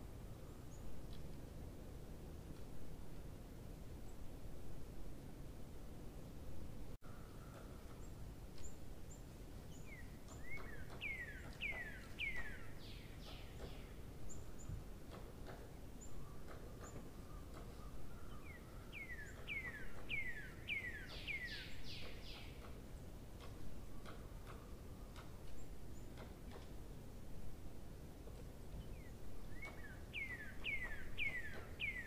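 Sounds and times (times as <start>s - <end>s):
background hiss: 0.0s - 32.0s
faint clicks: 23.4s - 26.8s
bird whistling call: 29.6s - 32.0s.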